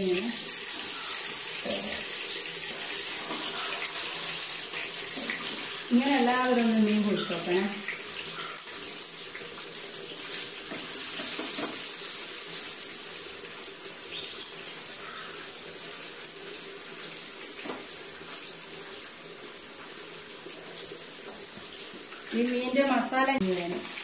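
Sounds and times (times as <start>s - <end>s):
fish sizzling in oil: 0.0s - 24.0s.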